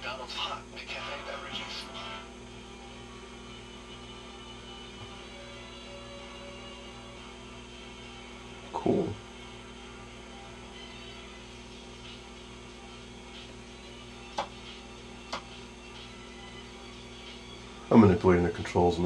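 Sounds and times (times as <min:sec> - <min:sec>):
television humming: 0:00.0 - 0:19.0.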